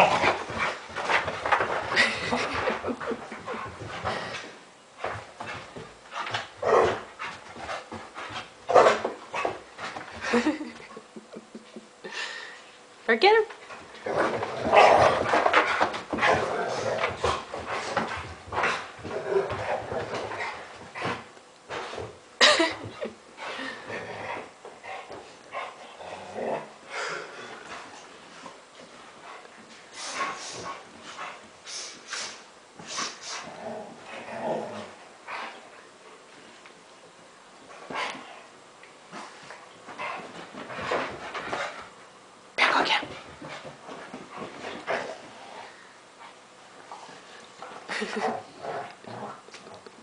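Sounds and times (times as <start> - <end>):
dogs scuffling: 0.0 - 10.9, 13.5 - 25.8, 39.1 - 49.7
dogs panting and huffing: 0.0 - 12.0, 13.6 - 26.0, 27.0 - 33.5, 39.2 - 42.0, 42.9 - 48.2.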